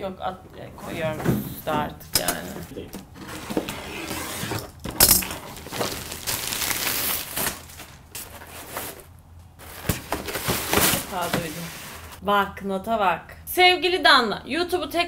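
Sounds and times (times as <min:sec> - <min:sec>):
plastic bag crinkling: 0:05.2 - 0:12.2
cardboard box clack: 0:07.4 - 0:12.1.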